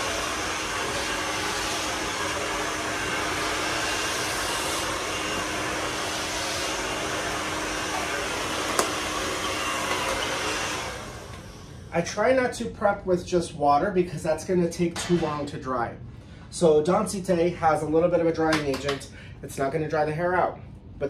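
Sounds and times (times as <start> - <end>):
hair dryer blowing: 0.0 - 11.9.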